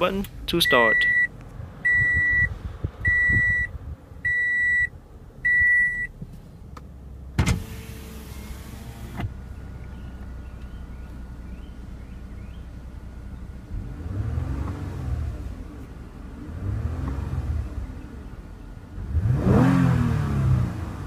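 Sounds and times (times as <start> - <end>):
car engine idling: 0.0 - 19.3
car engine starting: 0.0 - 21.0
dashboard chime beeps: 0.6 - 1.3, 1.9 - 2.5, 5.5 - 6.1.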